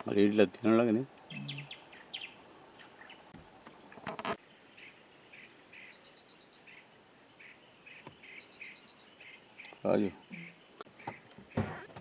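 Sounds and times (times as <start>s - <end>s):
high chirping: 1.2s - 3.3s, 4.8s - 12.0s.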